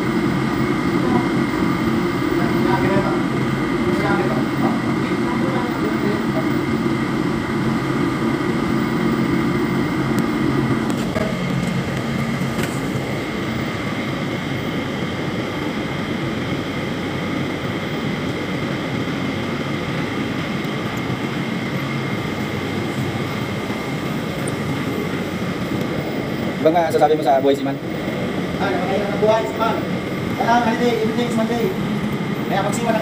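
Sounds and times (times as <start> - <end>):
machinery and ventilation drone: 0.0 - 33.0.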